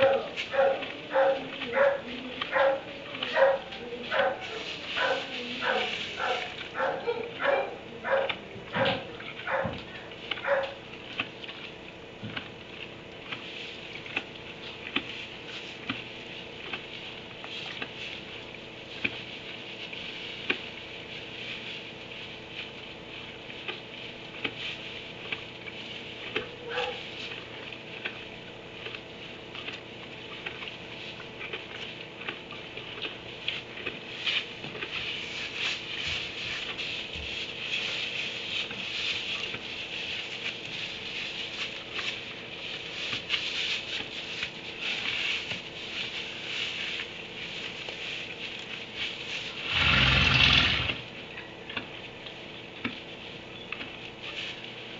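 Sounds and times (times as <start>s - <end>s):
dog barking: 0.0s - 10.8s, 26.6s - 27.1s
donkeys moving in shavings bedding: 0.0s - 54.9s.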